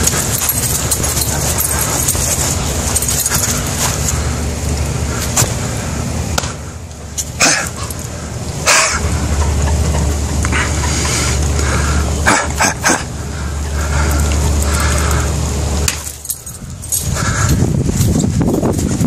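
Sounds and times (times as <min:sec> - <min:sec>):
dog making breathy sounds: 0:00.0 - 0:04.4, 0:10.5 - 0:15.3
steady background noise: 0:00.0 - 0:19.0.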